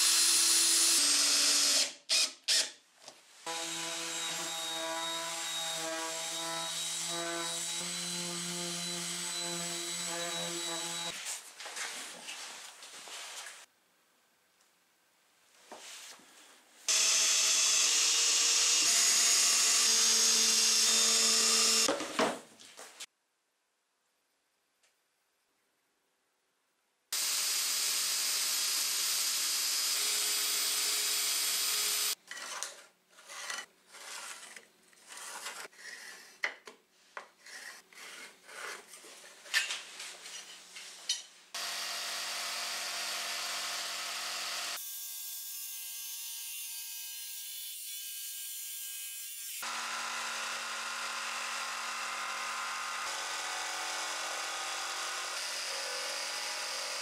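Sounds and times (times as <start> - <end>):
electric drill boring into wood: 0.0 - 2.8, 16.9 - 21.9, 27.2 - 32.2, 41.6 - 44.9, 49.6 - 57.0
jigsaw cutting wood: 0.0 - 2.8, 3.5 - 11.2, 16.9 - 21.9, 27.2 - 32.2, 41.6 - 44.9, 49.6 - 57.0
scrapes and knocks: 32.2 - 41.3.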